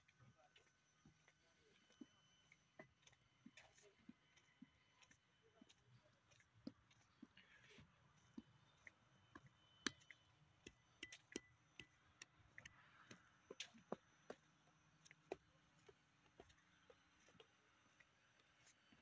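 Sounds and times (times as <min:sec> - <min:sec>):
faint irregular clicks: 0:08.2 - 0:14.0.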